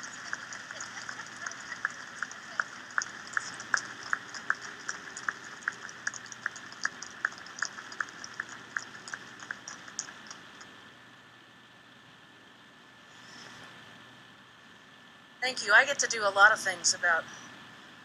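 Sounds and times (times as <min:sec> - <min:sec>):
hands clapping: 0:00.0 - 0:10.7.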